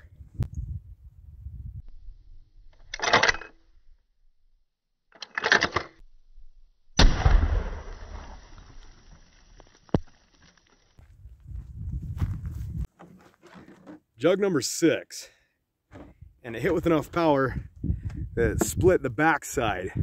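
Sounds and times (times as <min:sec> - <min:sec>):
rifle shot: 0:07.0 - 0:08.8.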